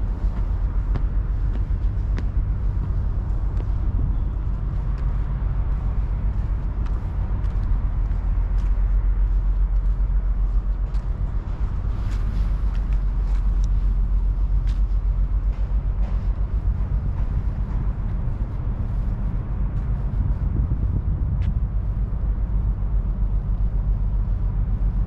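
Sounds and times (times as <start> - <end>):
low city rumble: 0.0 - 25.0.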